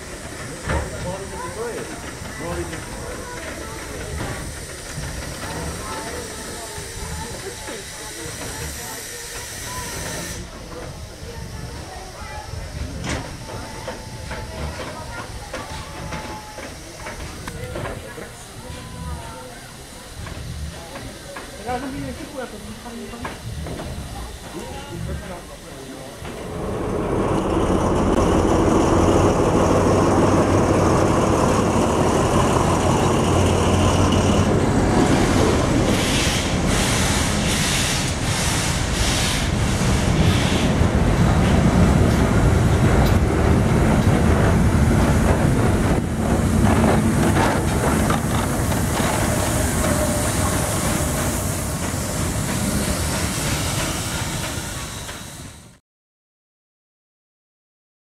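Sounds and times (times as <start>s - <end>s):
wheels clacking over rail joints: 0.0s - 8.9s, 26.2s - 55.3s
railway cars rumbling past: 0.0s - 55.8s.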